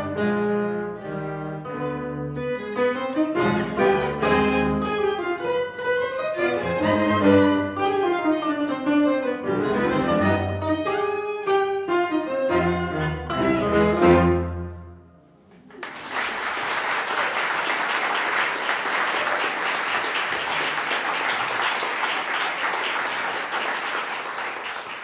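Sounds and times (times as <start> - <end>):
audience applauding: 15.5 - 25.0.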